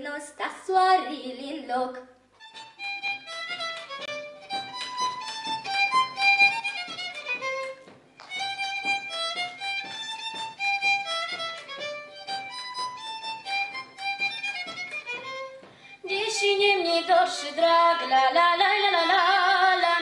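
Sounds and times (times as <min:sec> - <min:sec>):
bass string instrument: 0:02.4 - 0:16.3
folk fiddle dance tune: 0:02.4 - 0:20.0.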